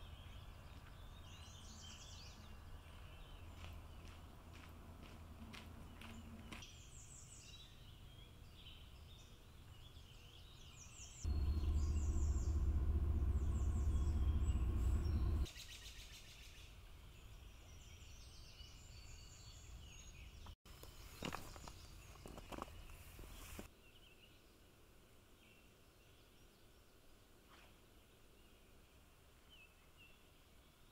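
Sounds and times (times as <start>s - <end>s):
songbirds chirping: 0.0s - 30.9s
loud low rumble: 11.3s - 15.5s.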